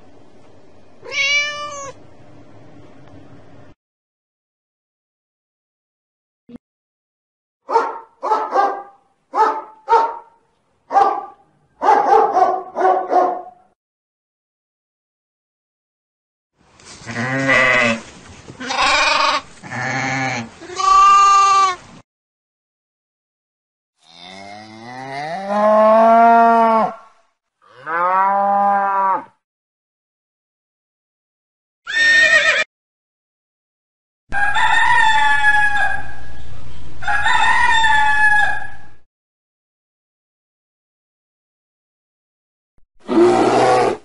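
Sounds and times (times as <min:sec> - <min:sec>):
sheep bleating: 0:17.1 - 0:18.0, 0:18.6 - 0:21.8
rooster crowing: 0:34.3 - 0:36.2, 0:37.0 - 0:39.0.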